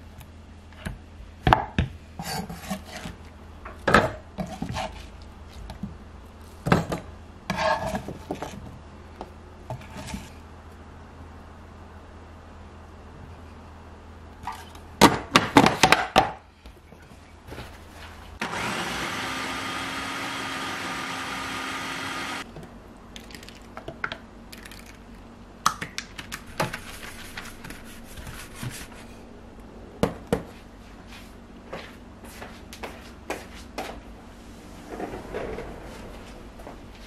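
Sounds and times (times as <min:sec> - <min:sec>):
food processor running: 0:18.4 - 0:22.4.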